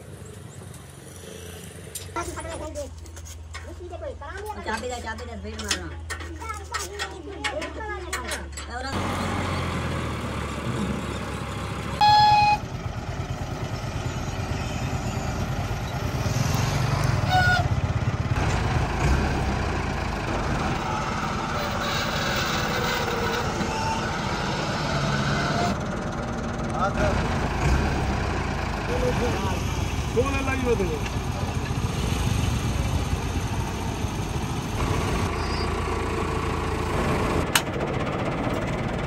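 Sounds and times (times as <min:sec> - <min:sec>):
tractor diesel engine running: 0:02.2 - 0:39.0
loud pitched horn-like tone: 0:12.0 - 0:12.6.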